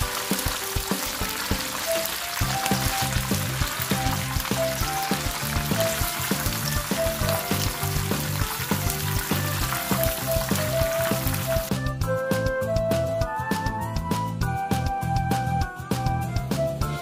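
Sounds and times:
shrimp deep-frying in oil: 0:00.0 - 0:11.8
background music with beat: 0:00.0 - 0:17.0.

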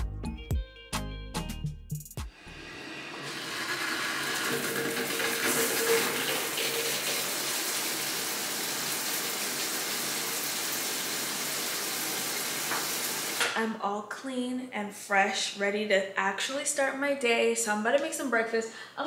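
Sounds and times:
shower water spraying on tiles: 0:02.7 - 0:13.4.

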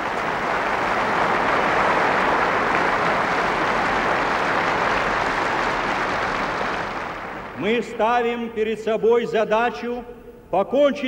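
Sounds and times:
stadium crowd applauding: 0:00.0 - 0:08.0.

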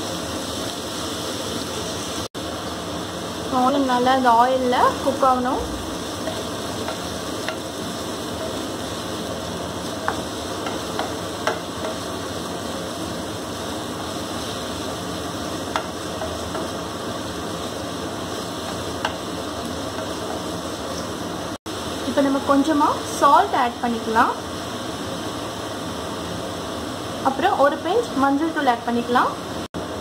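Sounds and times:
onions sizzling in oil: 0:00.0 - 0:30.0
spatula tapping pan: 0:06.2 - 0:08.7, 0:09.9 - 0:12.2, 0:15.6 - 0:16.8, 0:18.6 - 0:20.6.

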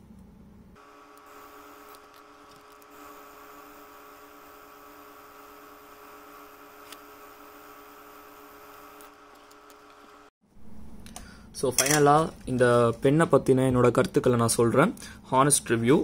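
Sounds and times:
small motor whirring: 0:00.8 - 0:10.3.

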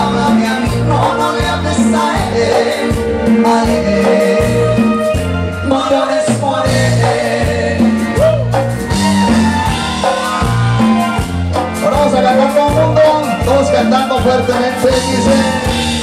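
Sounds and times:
man singing into a microphone: 0:00.0 - 0:08.6, 0:11.8 - 0:15.8
live band playing: 0:00.0 - 0:16.0
pulsing bass line: 0:00.0 - 0:16.0.

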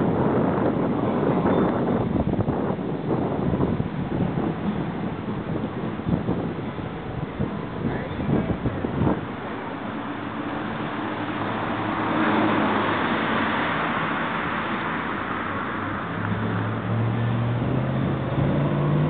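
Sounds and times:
vehicle engine humming: 0:00.0 - 0:19.0
vehicle passing: 0:10.0 - 0:19.0.

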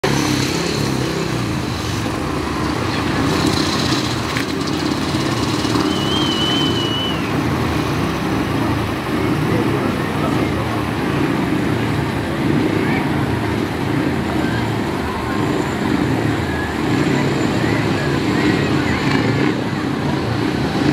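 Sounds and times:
crowd murmuring: 0:00.0 - 0:20.9
motorcycle engines running: 0:00.0 - 0:20.9
high wavering whistle: 0:05.8 - 0:07.4.

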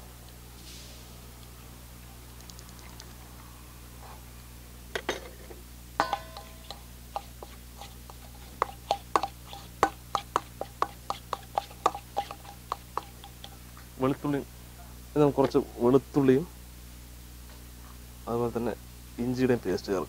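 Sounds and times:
spoon clinking against steel bowl: 0:06.0 - 0:07.5, 0:08.6 - 0:13.6.

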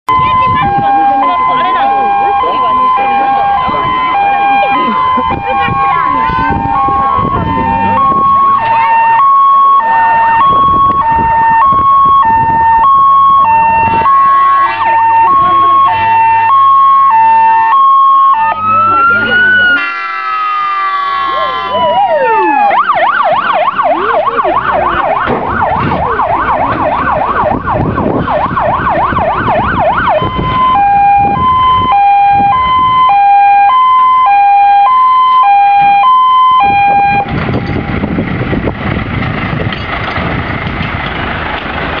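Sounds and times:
siren yelping: 0:00.1 - 0:37.3
truck engine running: 0:00.2 - 0:33.0, 0:36.6 - 0:42.0
two-tone hi-lo horn: 0:19.8 - 0:21.9.

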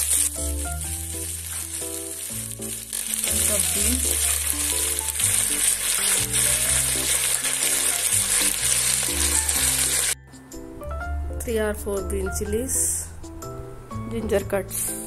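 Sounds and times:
vegetables sizzling in hot oil: 0:00.0 - 0:10.2
soft background music: 0:00.0 - 0:15.0.

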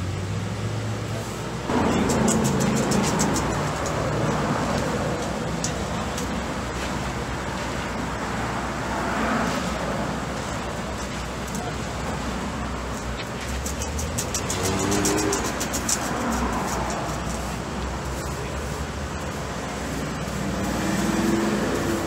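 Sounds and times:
low engine hum: 0:00.0 - 0:22.0
traffic rushing by: 0:00.0 - 0:22.0
rapid ticking: 0:01.7 - 0:06.4, 0:12.8 - 0:18.4.

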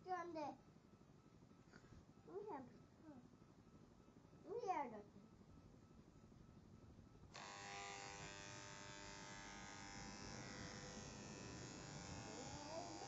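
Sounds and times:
electric hair clippers buzzing: 0:07.3 - 0:13.0.

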